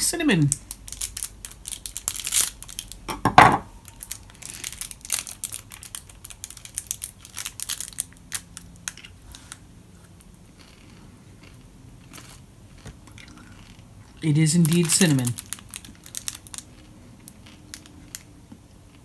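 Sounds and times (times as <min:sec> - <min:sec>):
plastic wrapper crinkling and tearing: 0:00.3 - 0:03.1, 0:03.8 - 0:09.6, 0:14.2 - 0:18.3.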